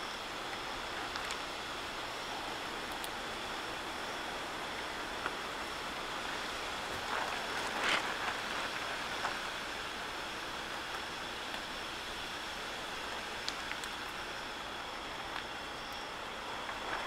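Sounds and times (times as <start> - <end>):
faint ticks: 13.4 - 14.2.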